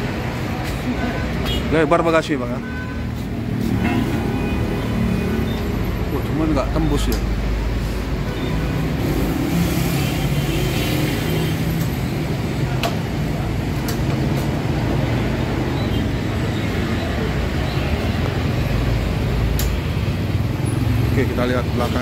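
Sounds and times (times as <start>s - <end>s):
street traffic: 0.0s - 22.0s
sharp clicks: 19.5s - 19.8s.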